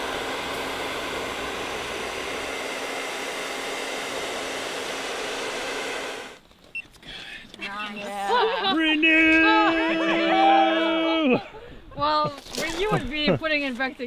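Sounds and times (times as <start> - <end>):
hair dryer running: 0.0 - 6.4.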